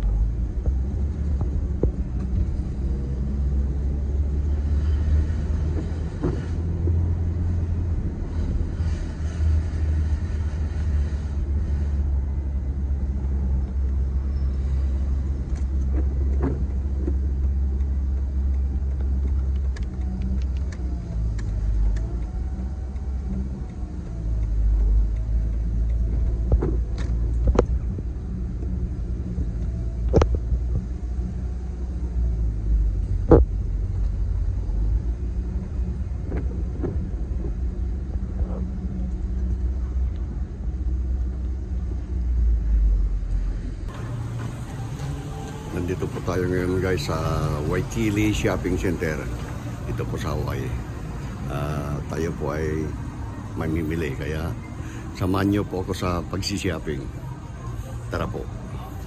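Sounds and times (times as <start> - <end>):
car driving from inside cabin: 0.0 - 59.0
sharp clicks: 15.5 - 28.0.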